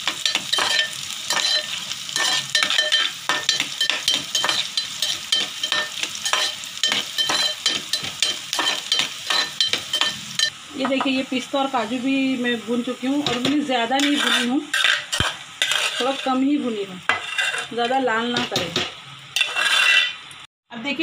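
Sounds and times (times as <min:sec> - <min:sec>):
nuts sizzling in hot fat: 0:00.0 - 0:20.5
metal spoon scraping a pot: 0:00.2 - 0:10.5, 0:14.0 - 0:16.4, 0:17.1 - 0:18.0, 0:19.4 - 0:20.2.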